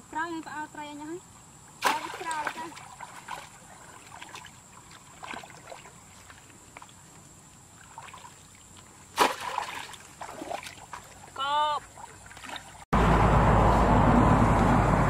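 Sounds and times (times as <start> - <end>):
shallow water sloshing: 1.7 - 12.9
sharp loud splash: 1.8 - 4.5, 9.1 - 11.3.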